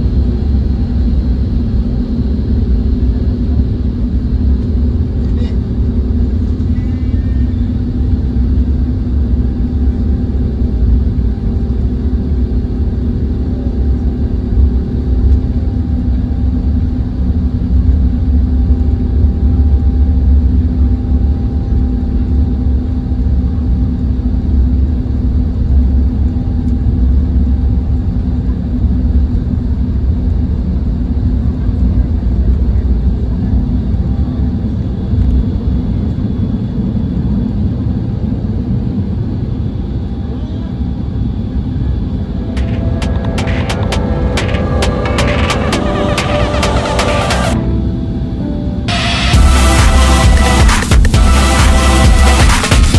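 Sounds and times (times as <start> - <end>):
airliner taxiing rumble: 0.0 - 52.4
steady hum: 40.7 - 52.9.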